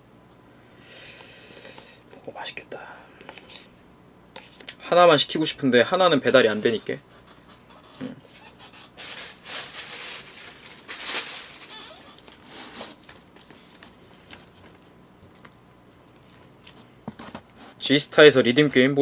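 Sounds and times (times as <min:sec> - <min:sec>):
plastic lid and tray rustling: 0:09.0 - 0:14.8, 0:17.1 - 0:17.8.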